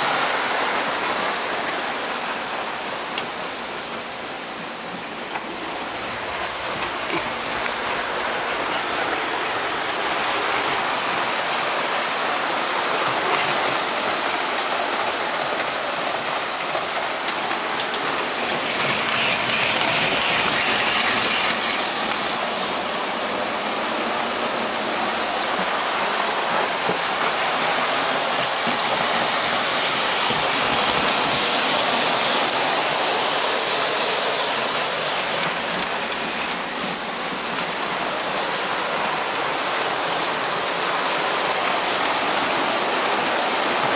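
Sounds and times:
model train wheels clattering on track: 0:06.2 - 0:11.0, 0:12.9 - 0:23.1, 0:23.9 - 0:43.9.

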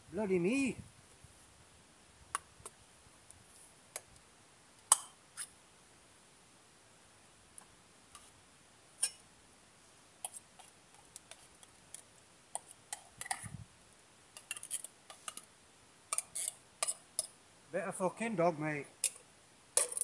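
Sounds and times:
metal spoon clinking on can: 0:19.8 - 0:20.0.

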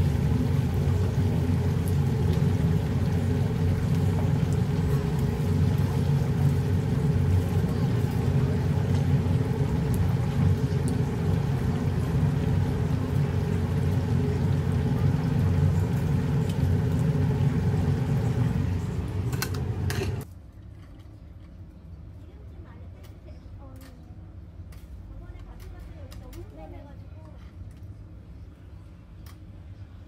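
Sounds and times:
low rumble: 0:00.0 - 0:20.2
oil bubbling in deep fryer: 0:00.0 - 0:20.3.

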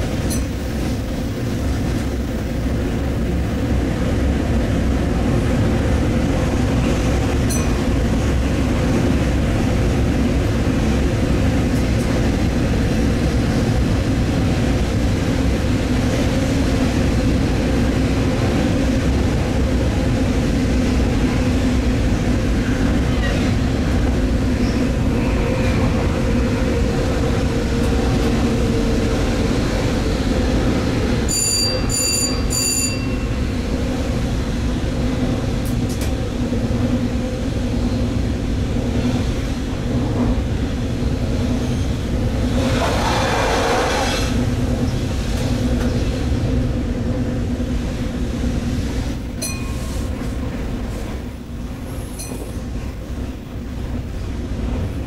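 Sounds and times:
train engine and wheels rumbling: 0:00.0 - 0:55.0
rush of noise: 0:41.3 - 0:46.6.

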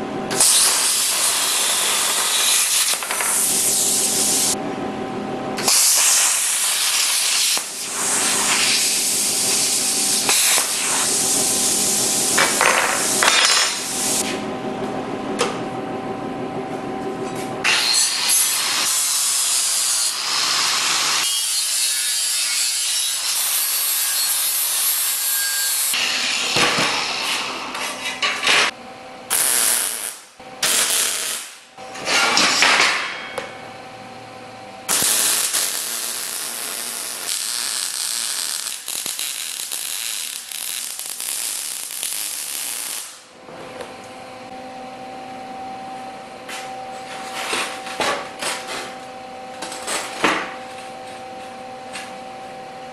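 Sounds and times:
mig welding crackling hiss: 0:00.4 - 0:04.6, 0:05.6 - 0:14.3, 0:29.3 - 0:31.6, 0:34.9 - 0:43.3.

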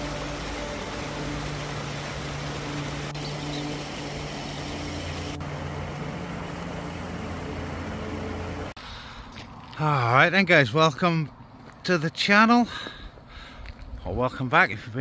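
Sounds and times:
stream rushing over rocks: 0:00.0 - 0:08.8.

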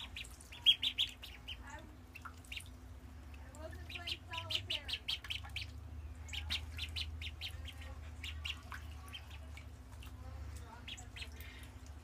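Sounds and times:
ducklings peeping: 0:00.0 - 0:12.0
steady low hum: 0:00.0 - 0:12.0.

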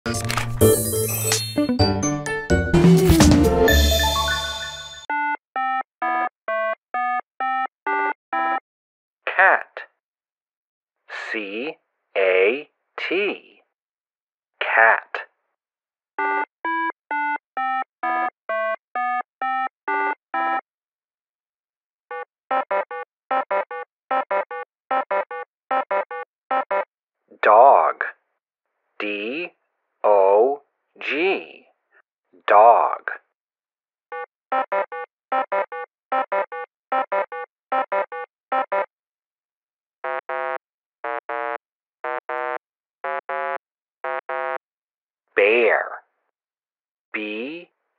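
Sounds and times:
synthesizer tune: 0:00.1 - 0:06.3, 0:16.2 - 0:20.6, 0:34.1 - 0:38.9
synthesizer notes in quick groups: 0:00.8 - 0:05.3.

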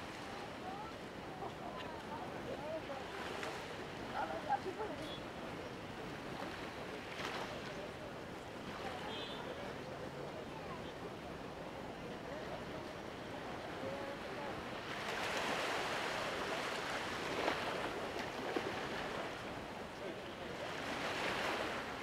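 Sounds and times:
sea waves washing on shore: 0:12.2 - 0:22.0.

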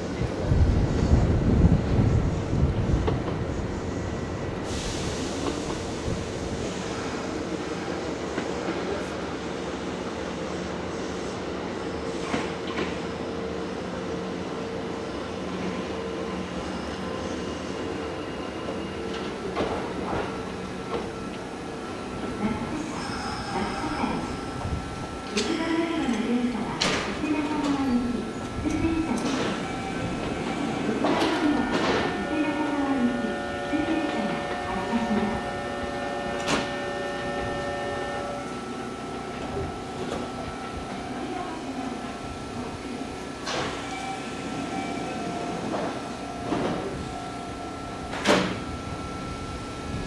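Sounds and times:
electric train humming: 0:12.7 - 0:50.0.

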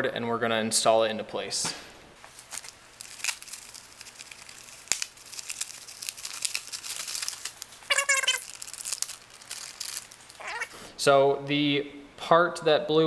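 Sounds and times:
plastic wrap crinkling and tearing: 0:02.2 - 0:10.8
short squeaky pitched sound: 0:07.9 - 0:08.4.

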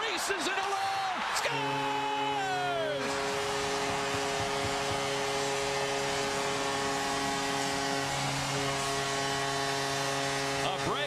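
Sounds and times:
crowd cheering: 0:00.0 - 0:11.0
sustained horn-like tone: 0:01.4 - 0:11.0.

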